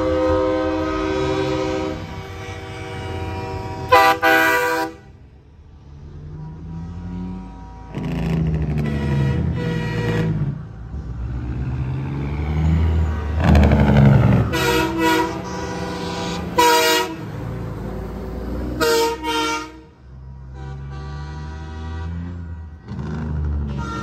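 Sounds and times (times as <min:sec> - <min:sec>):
truck air horns blasting: 0:00.0 - 0:05.3, 0:06.4 - 0:10.7, 0:13.5 - 0:17.6, 0:18.6 - 0:24.0
diesel engines rumbling: 0:00.0 - 0:24.0.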